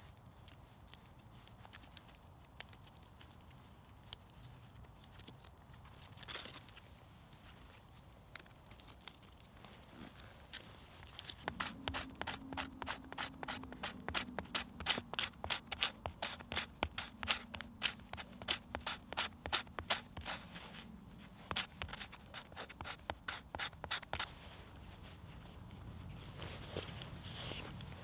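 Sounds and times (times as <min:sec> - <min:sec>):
knife scraping bark: 0:11.4 - 0:20.6, 0:21.5 - 0:24.3.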